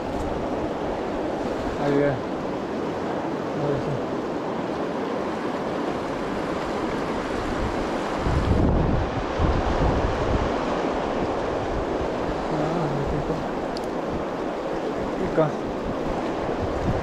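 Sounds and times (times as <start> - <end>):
river water rushing over rocks: 0.0 - 17.0
wind buffeting microphone: 5.3 - 17.0.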